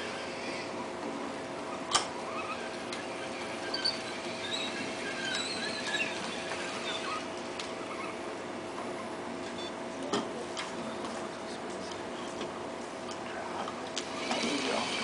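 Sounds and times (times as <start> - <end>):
electric motors humming: 0.0 - 15.0
high squeaks: 1.8 - 8.2.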